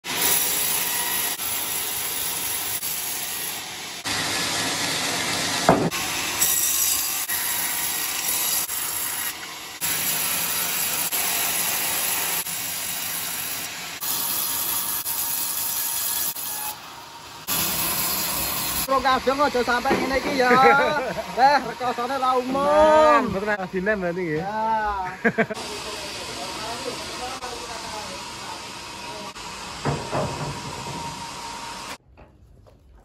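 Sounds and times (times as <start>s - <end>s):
band saw blade cutting wood: 0.0s - 22.6s.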